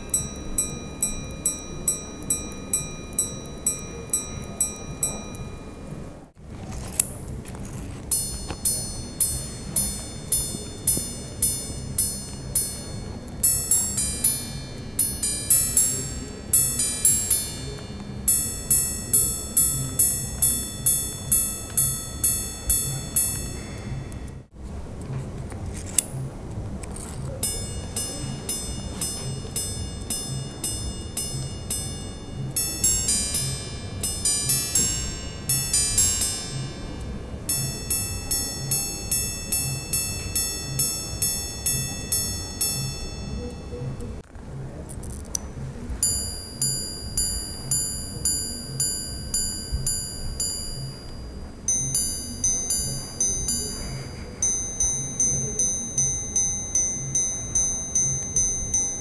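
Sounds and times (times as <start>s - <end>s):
watch gongs chiming: 0.0s - 24.5s, 26.9s - 44.2s, 45.4s - 59.0s.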